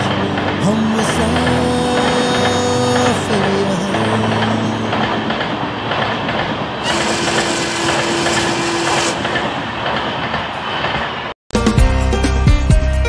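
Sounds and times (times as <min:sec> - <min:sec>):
music: 0:00.0 - 0:06.5, 0:11.6 - 0:13.0
train wheels on rail: 0:00.0 - 0:11.4.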